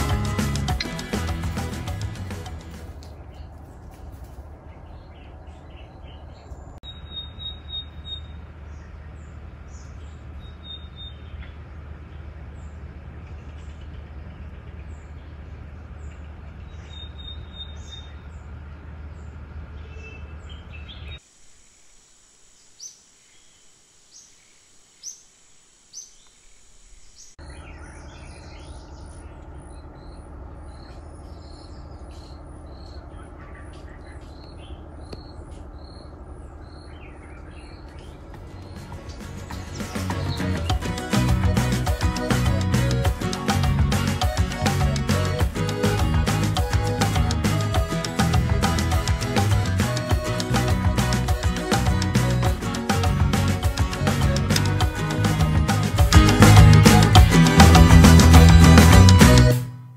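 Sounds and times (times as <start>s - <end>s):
birds chirping and trilling: 0.0s - 21.2s, 22.5s - 59.5s
very high pips: 38.2s - 59.8s.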